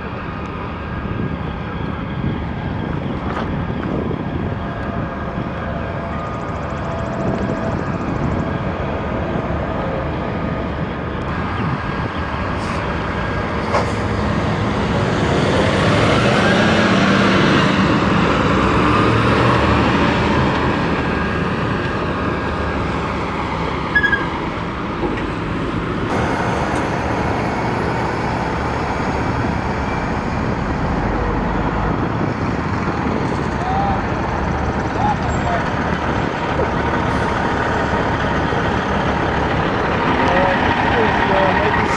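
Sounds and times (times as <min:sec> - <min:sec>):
road traffic: 0:00.0 - 0:41.9
diesel engine idling: 0:19.9 - 0:41.9.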